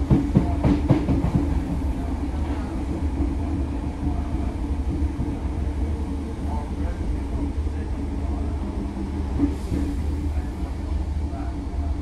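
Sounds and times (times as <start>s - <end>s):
train interior rumble: 0.0s - 12.0s.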